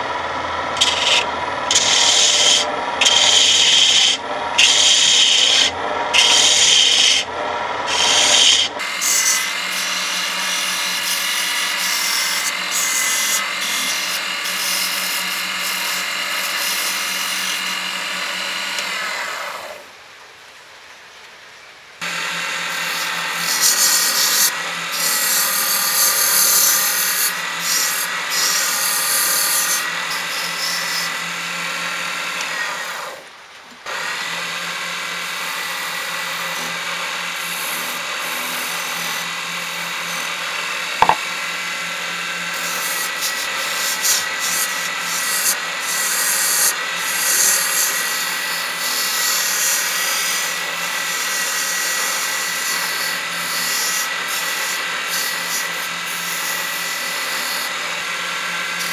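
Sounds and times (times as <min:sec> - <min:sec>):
wood lathe running: 0:00.0 - 0:19.8, 0:22.0 - 0:33.3, 0:33.9 - 0:58.9
whine of spinning wood: 0:00.0 - 0:19.9, 0:33.9 - 0:46.1
turning tool scraping wood: 0:00.8 - 0:07.2, 0:07.8 - 0:19.8, 0:22.0 - 0:31.2, 0:35.0 - 0:41.8, 0:42.5 - 0:58.0.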